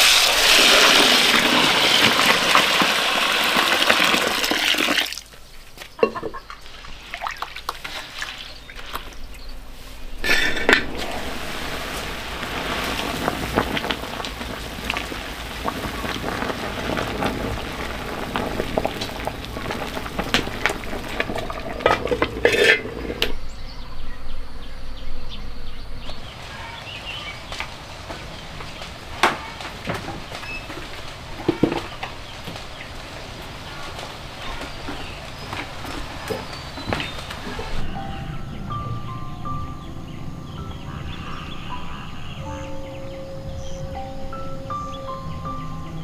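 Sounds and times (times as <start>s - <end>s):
water boiling and bubbling: 0.0s - 5.4s, 6.0s - 9.5s, 10.2s - 23.4s, 26.8s - 37.9s.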